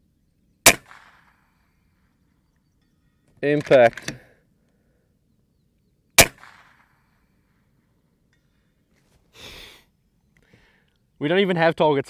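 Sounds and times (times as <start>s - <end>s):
air rifle shot: 0.6s - 1.6s, 6.2s - 7.0s.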